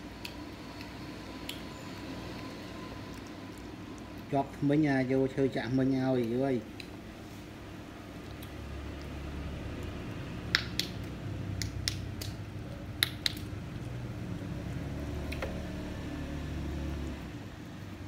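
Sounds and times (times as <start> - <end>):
cat chewing and licking: 0.1 - 18.0.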